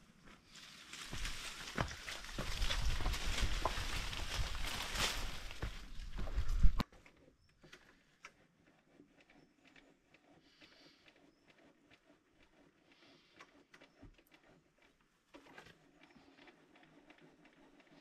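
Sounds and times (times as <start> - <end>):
faint clicks and ticks: 6.5 - 18.0.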